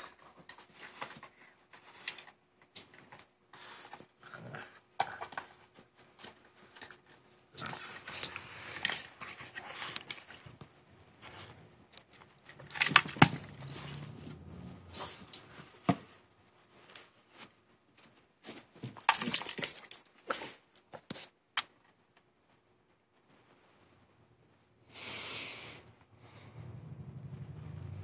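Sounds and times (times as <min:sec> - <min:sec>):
dog collar tags jangling: 0:19.0 - 0:20.1.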